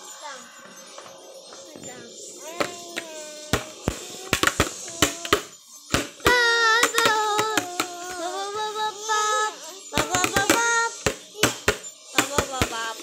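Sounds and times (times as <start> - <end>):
child singing long notes: 2.4 - 5.5, 6.2 - 11.7.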